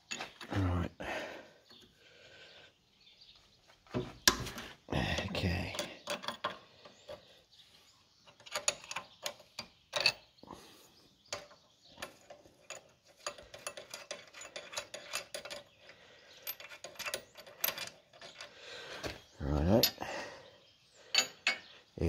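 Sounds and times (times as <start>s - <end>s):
spanner clicking on metal nuts: 5.7s - 6.6s, 11.4s - 15.7s, 16.4s - 18.5s.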